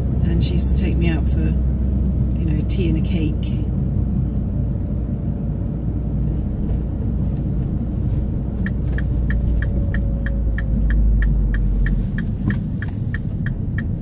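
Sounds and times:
car engine and road rumble: 0.0s - 14.0s
turn indicator ticking: 8.6s - 14.0s.

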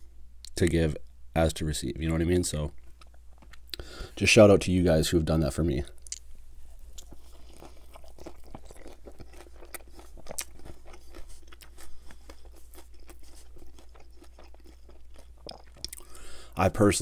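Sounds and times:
biting and chewing crunchy food: 6.1s - 16.3s.

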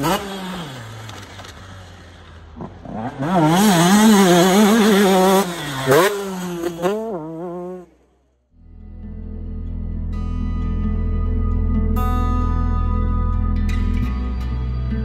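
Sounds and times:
motocross bike engine revving: 0.0s - 8.1s.

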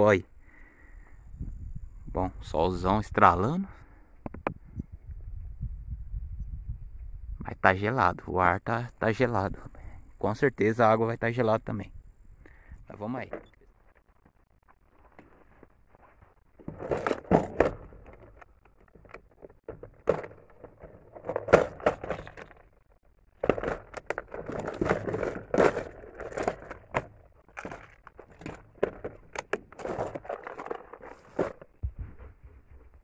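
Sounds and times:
plastic box clicking and knocking: 16.6s - 22.8s, 23.4s - 31.8s
plastic bags rustling in backpack: 23.4s - 31.8s.

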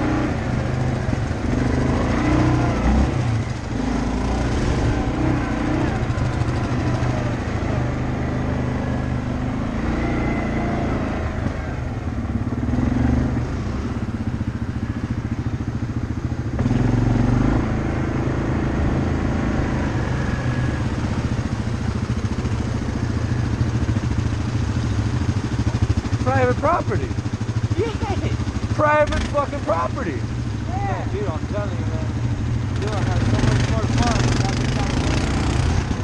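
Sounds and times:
atv engine running: 0.0s - 36.0s.

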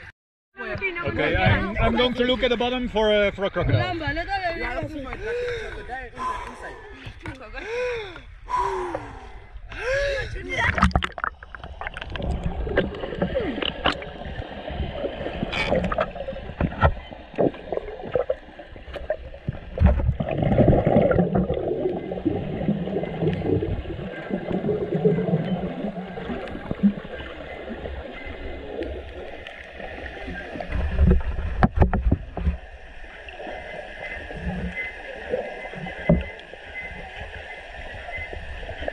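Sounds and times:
muffled underwater gurgling water: 3.2s - 38.9s
underwater clicks and knocks: 10.6s - 14.5s, 15.3s - 29.7s, 30.6s - 32.6s, 35.8s - 36.5s.

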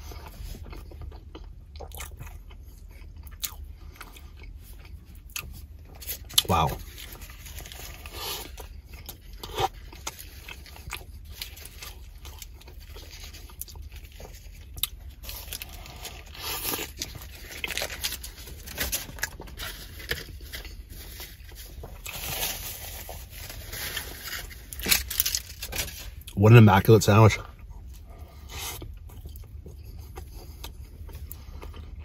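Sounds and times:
chewing and wet smacks: 0.1s - 6.5s, 7.5s - 17.7s
paper wrapper rustling: 15.2s - 26.2s.

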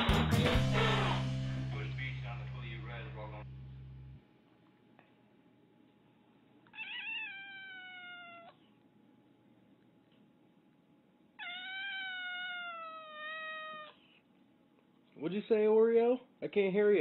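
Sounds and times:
cat meowing: 6.7s - 8.6s, 11.4s - 14.0s.

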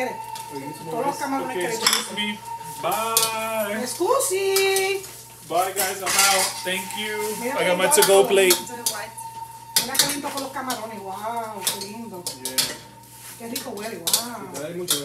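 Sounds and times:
spatula scraping a wok: 5.0s - 10.5s, 11.5s - 14.3s.

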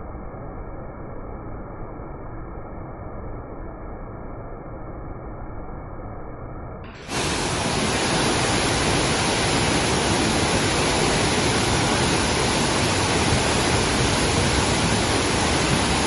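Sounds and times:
waterfall rushing into pool: 6.9s - 16.0s.

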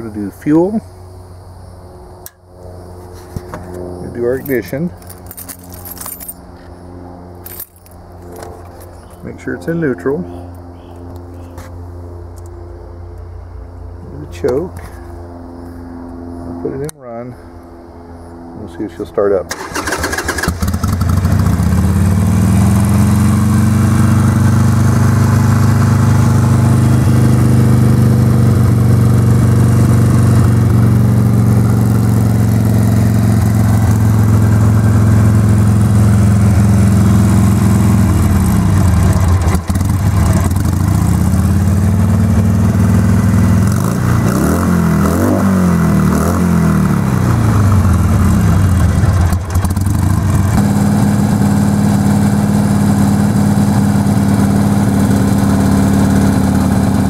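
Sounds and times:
motorcycle engine idling: 19.6s - 43.7s, 47.4s - 57.0s.

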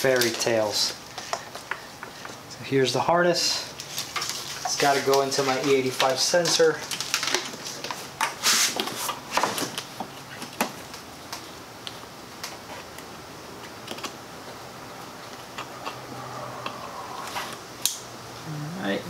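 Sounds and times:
plastic wiring harness rustling: 3.6s - 11.5s.

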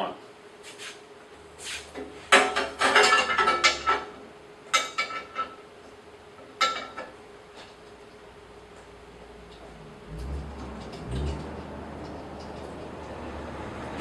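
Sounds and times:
metal clanks and rattles: 2.3s - 5.6s, 9.5s - 13.2s.

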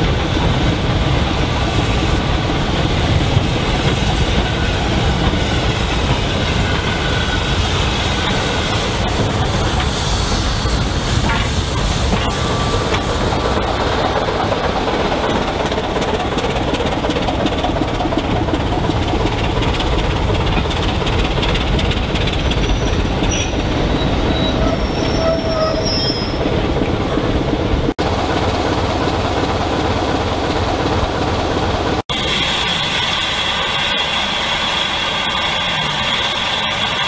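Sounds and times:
train running noise: 0.0s - 37.0s.

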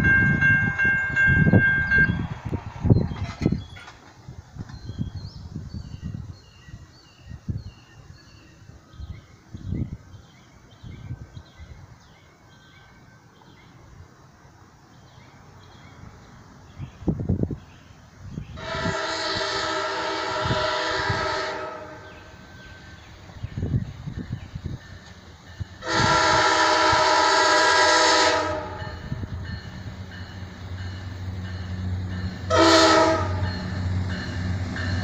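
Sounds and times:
crossing warning bell dinging: 0.0s - 2.4s, 21.6s - 23.2s, 24.6s - 35.0s
wind buffeting microphone: 0.0s - 12.2s, 15.6s - 35.0s
train horn blast: 18.6s - 22.3s, 25.8s - 29.3s, 32.5s - 33.8s.

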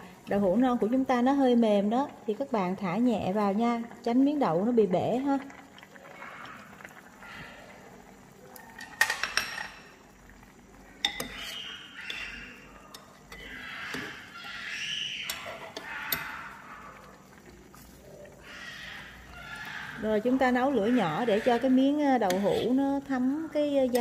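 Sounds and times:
soup simmering: 0.0s - 24.0s
metal utensil clinking on pot: 8.8s - 9.9s, 11.0s - 14.2s, 15.2s - 16.6s.

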